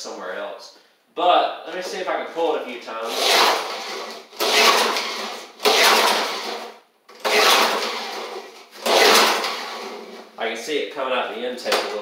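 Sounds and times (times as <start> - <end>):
recoil starter rope pulled: 3.0 - 10.3
engine cranking over: 3.0 - 10.4.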